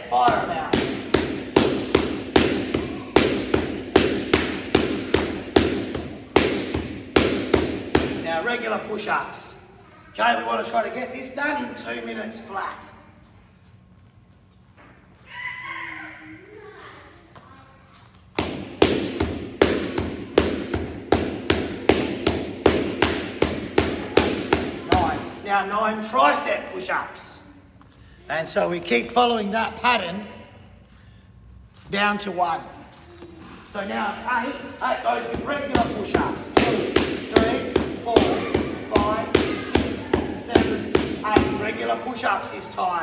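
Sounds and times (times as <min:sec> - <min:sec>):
boxing gloves smacking focus mitts: 0:00.2 - 0:08.2.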